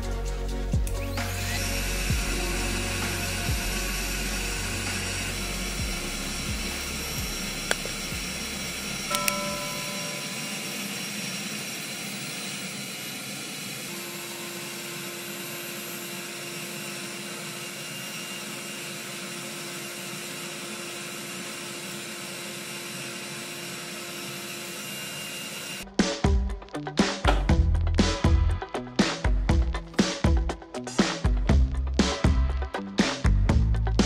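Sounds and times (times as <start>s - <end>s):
small vacuum cleaner running: 0.8s - 25.9s.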